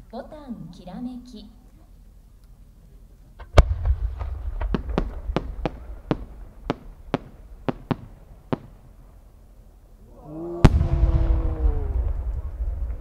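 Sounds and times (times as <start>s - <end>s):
firework cracks: 3.4s - 9.1s
loud firework bang: 3.5s - 8.8s, 10.6s - 13.0s.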